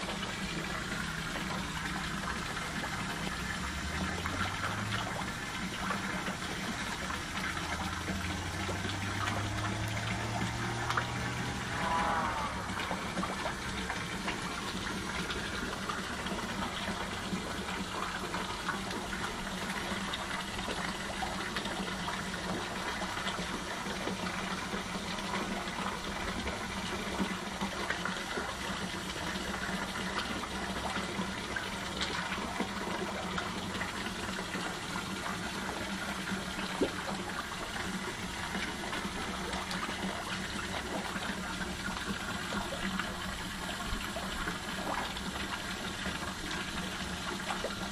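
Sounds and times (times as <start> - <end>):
low steady hum: 0.0 - 28.6
water running into pond: 0.0 - 47.9.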